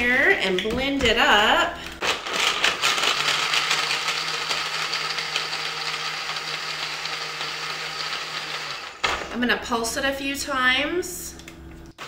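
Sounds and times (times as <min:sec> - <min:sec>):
blender whirring: 0:02.0 - 0:09.3.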